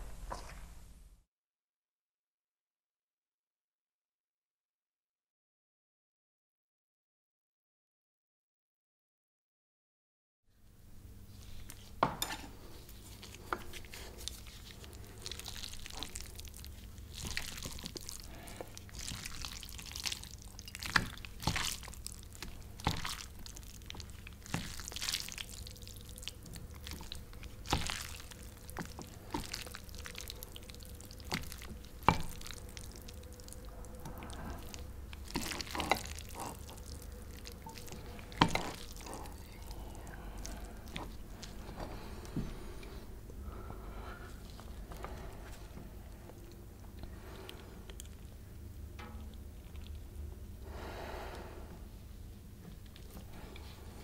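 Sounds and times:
wet squishing of noodles: 11.3 - 51.4, 52.3 - 54.0.

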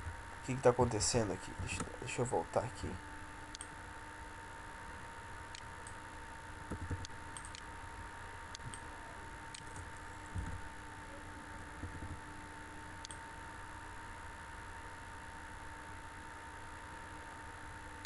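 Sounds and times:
steady background hum: 0.0 - 18.0
thin steady whine: 0.0 - 18.0
computer mouse clicks: 3.5 - 3.7, 6.7 - 7.7, 8.5 - 8.8, 9.5 - 10.6.

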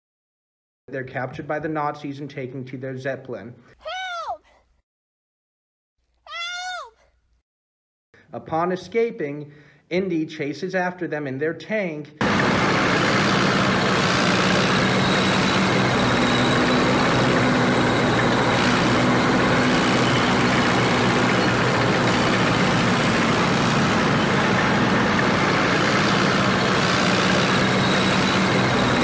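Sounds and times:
vehicle engine droning: 12.2 - 29.0.

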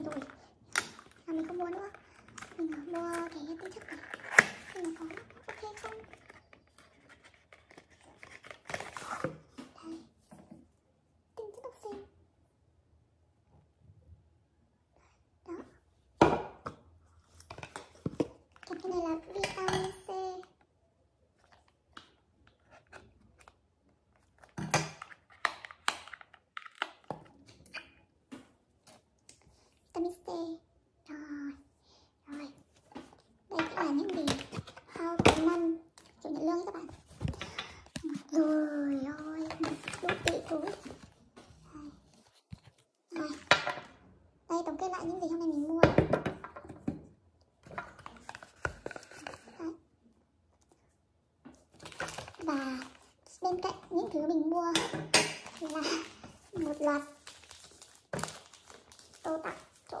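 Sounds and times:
plastic wrap crinkling and tearing: 0.0 - 9.2, 51.7 - 53.7, 55.3 - 60.0.

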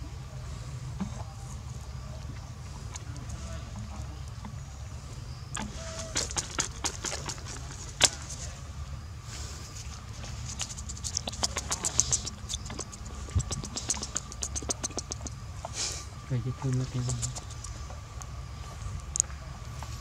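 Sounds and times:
low steady rumble: 0.0 - 20.0
monkey chewing with wet clicks: 2.2 - 4.6, 5.6 - 8.6, 9.8 - 18.3.

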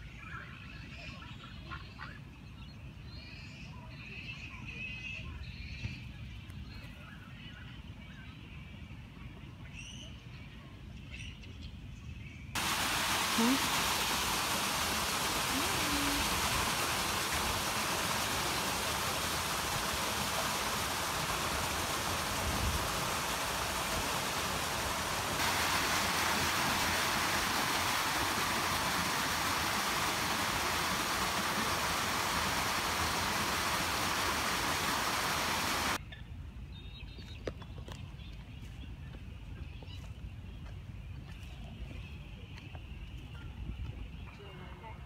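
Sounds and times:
steady rushing noise: 12.6 - 36.0.

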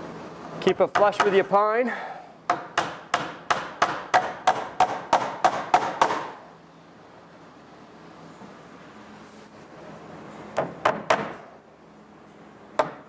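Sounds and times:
hammer striking nail into wood: 2.5 - 6.4, 10.6 - 11.4, 12.8 - 13.0.

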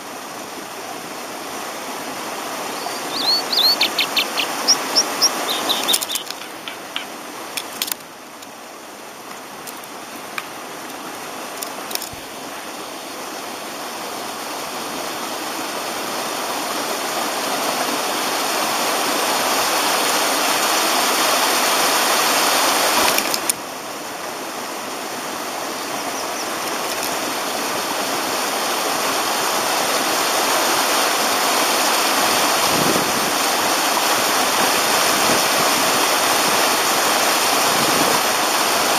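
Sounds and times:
stream rushing: 0.0 - 38.9
sharp bird calls: 2.7 - 7.2.

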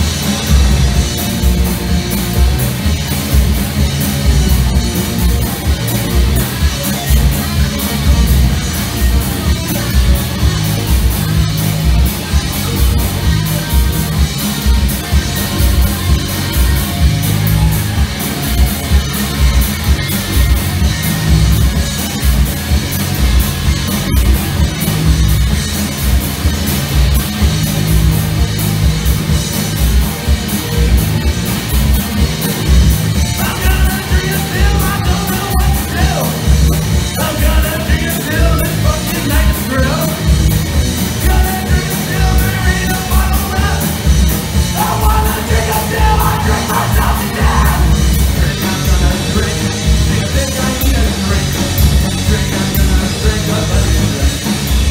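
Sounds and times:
bass guitar: 0.0 - 54.9
distorted electric guitar: 0.0 - 54.9
drum kit: 0.0 - 54.9
person singing: 33.2 - 36.5, 41.1 - 54.9.

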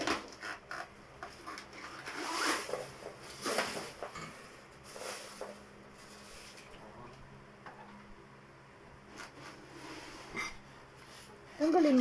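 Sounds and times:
refrigerator scraping on floor: 1.8 - 4.0, 9.2 - 10.4.

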